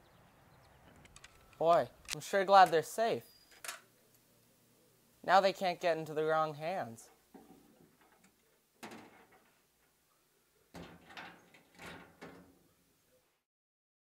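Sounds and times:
locking mechanism clunks: 10.7s - 12.6s.

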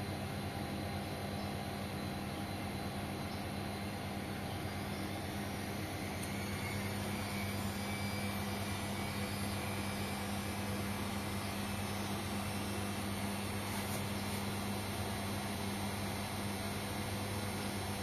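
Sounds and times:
washing machine motor hum: 0.0s - 18.0s
high whine rising in pitch: 4.7s - 16.2s.

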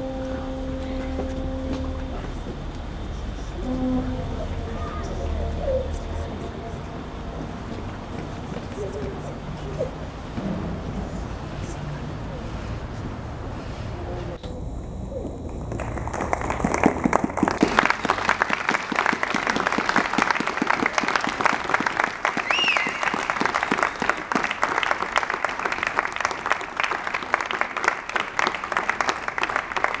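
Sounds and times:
audience clapping: 15.4s - 30.0s.

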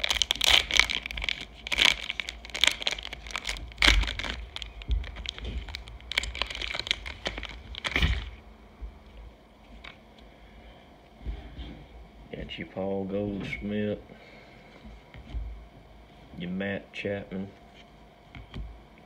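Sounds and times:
plastic wrapper crinkling: 0.0s - 8.4s
plastic wrapper tearing: 0.0s - 8.4s.

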